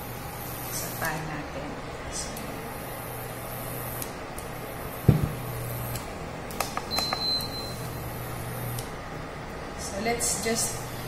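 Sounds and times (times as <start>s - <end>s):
knock: 5.1s - 5.4s.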